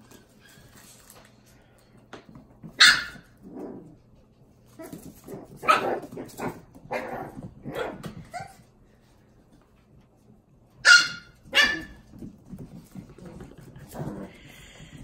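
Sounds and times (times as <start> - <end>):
puppies barking: 2.7 - 3.4, 5.6 - 8.6, 10.8 - 12.1.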